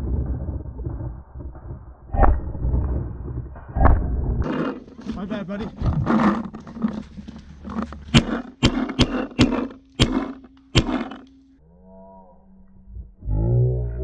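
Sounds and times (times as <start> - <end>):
paintball marker shots: 8.1 - 11.4.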